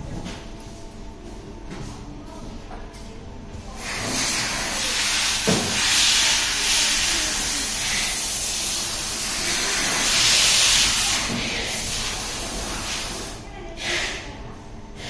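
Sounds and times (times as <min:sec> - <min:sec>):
steam hissing: 0:03.8 - 0:14.3.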